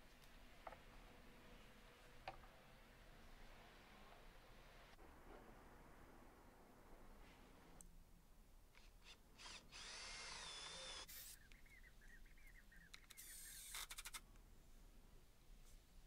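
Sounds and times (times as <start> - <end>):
cordless drill boring wood: 8.8 - 11.4, 13.1 - 14.2
impact driver driving screw: 8.8 - 11.4, 13.0 - 14.2.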